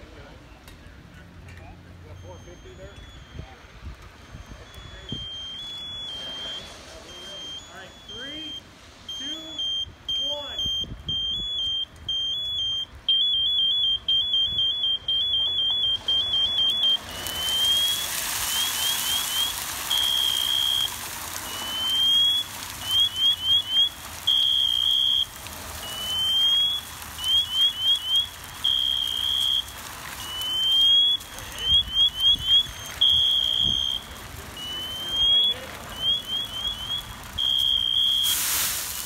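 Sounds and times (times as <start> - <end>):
electronic alarm beeping: 2.1 - 18.0, 18.6 - 25.3, 25.9 - 38.4
oil boiling over and flaring: 11.0 - 39.0.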